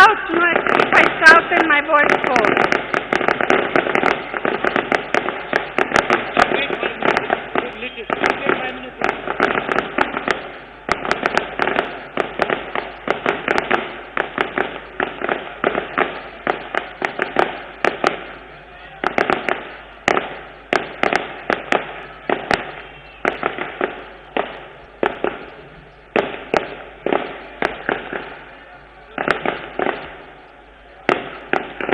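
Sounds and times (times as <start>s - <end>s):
firecrackers cracking: 0.0s - 31.9s.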